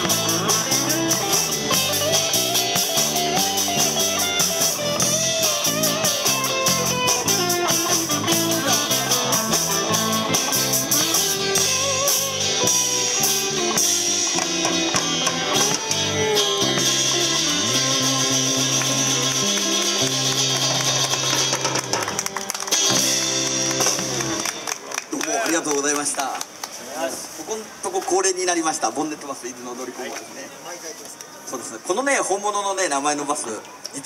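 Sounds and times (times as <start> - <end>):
live rock band playing: 0.0 - 25.2.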